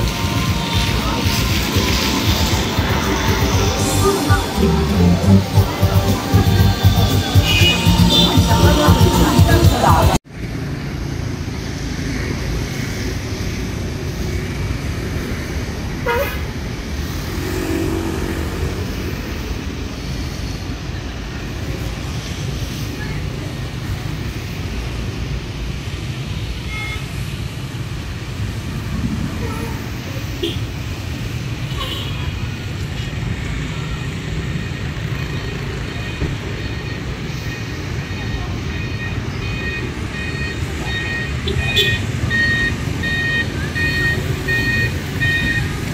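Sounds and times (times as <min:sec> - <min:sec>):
road traffic noise: 0:00.0 - 0:45.9
rumble of cars and buses: 0:00.0 - 0:45.9
short horn beep: 0:07.2 - 0:09.0.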